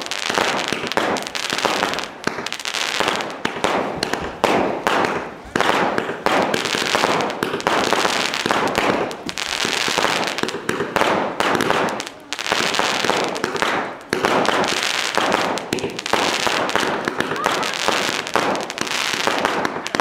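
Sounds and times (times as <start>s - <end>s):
fireworks bursting with bangs: 0.0s - 20.0s
fireworks crackling: 0.0s - 20.0s.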